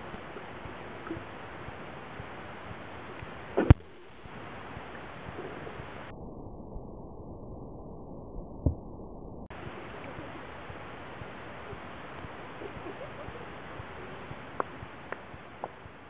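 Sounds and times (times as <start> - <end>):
pool water splashing: 0.0 - 6.1, 9.5 - 16.0.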